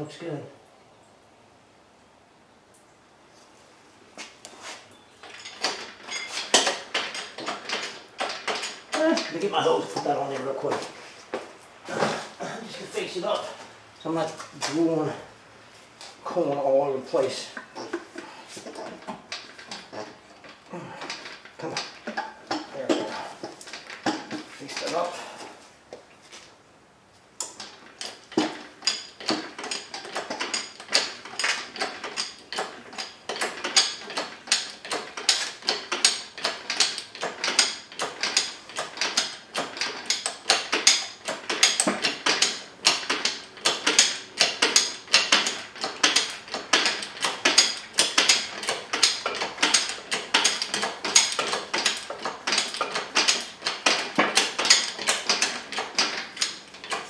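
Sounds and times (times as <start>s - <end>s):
engine hoist ratcheting: 4.2s - 11.0s, 16.2s - 25.4s, 27.4s - 57.0s.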